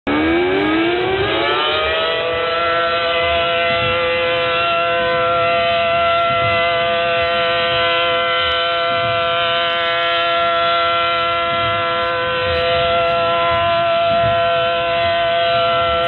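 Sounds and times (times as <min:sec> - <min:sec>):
warning siren steady chord: 0:00.1 - 0:16.0.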